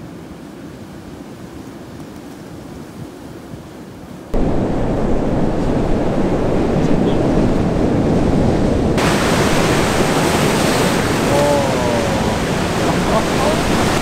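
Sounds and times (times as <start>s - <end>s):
breaking surf: 4.3s - 14.0s
wind buffeting microphone: 4.3s - 14.0s.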